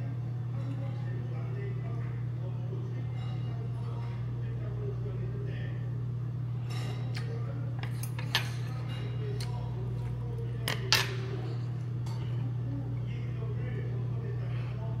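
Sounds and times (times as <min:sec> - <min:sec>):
steady low hum: 0:00.0 - 0:15.0
spoon and chopsticks clinking on bowl: 0:06.7 - 0:09.7.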